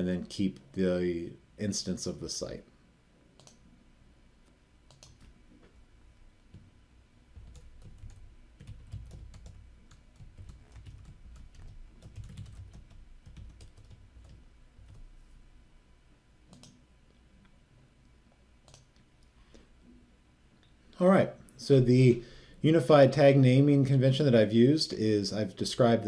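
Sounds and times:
computer keyboard typing: 4.9s - 5.3s, 7.4s - 15.0s, 16.5s - 16.8s, 18.6s - 18.9s.

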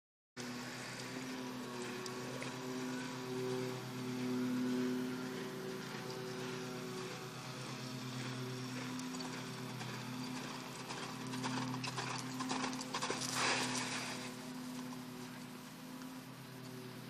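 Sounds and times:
hooves sliding through sand: 0.4s - 17.0s
low hum: 0.4s - 17.0s
hoofbeats on sand: 3.9s - 15.7s.

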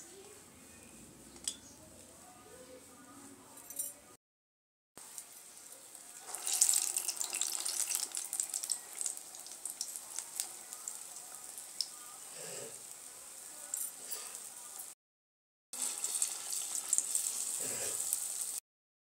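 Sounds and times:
batter sizzling in hot oil: 5.0s - 15.0s, 15.7s - 18.6s.

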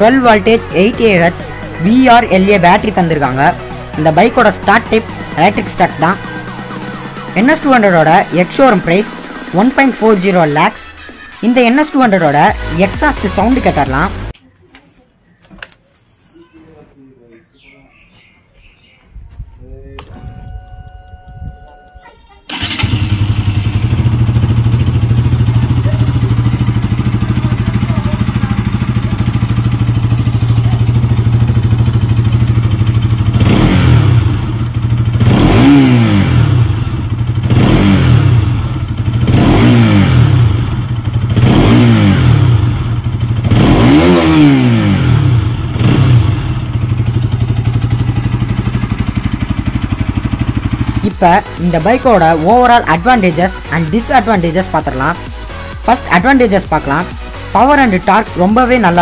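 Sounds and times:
motorcycle engine idling: 0.0s - 9.8s, 20.2s - 59.0s
motorcycle throttle blips: 19.2s - 51.3s.

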